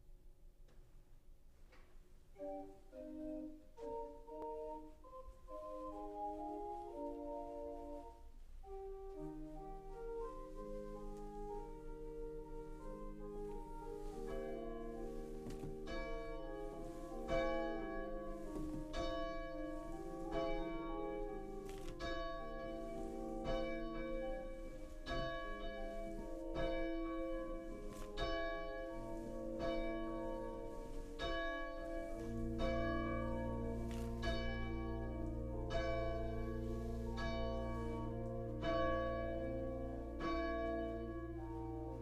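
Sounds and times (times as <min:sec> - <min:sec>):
church bells ringing: 0:09.9 - 0:42.0.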